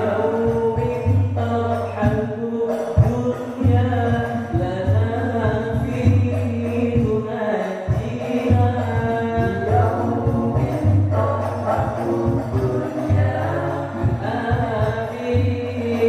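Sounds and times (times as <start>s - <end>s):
low drum beats: 3.0s - 7.3s, 7.9s - 16.0s.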